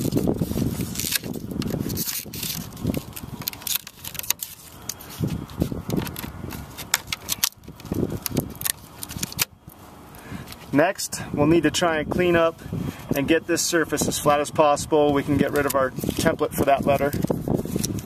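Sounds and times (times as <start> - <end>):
screwdriver scraping plastic: 0.0 - 9.5, 15.4 - 18.0
plastic clicking and cracking: 1.0 - 5.0, 5.8 - 9.5.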